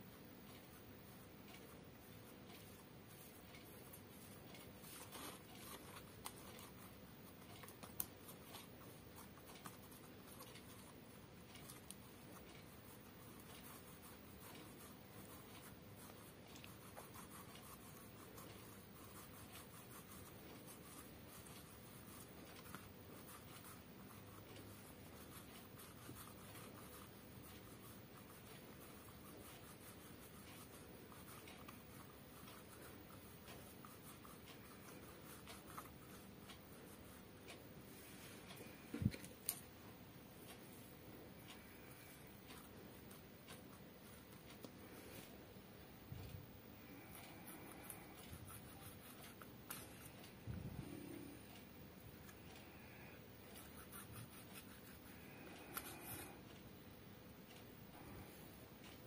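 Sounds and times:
clay rubbing on tile floor: 0:46.8 - 0:56.4.

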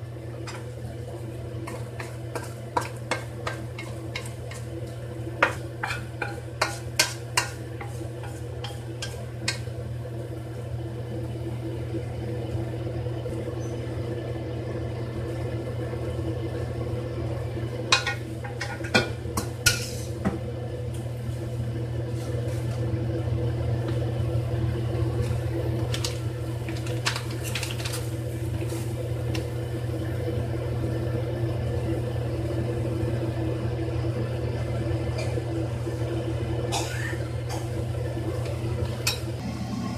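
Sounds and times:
steady low hum: 0:00.0 - 0:39.9
wooden spatula knocking on a wok: 0:01.6 - 0:04.7, 0:05.4 - 0:09.6.

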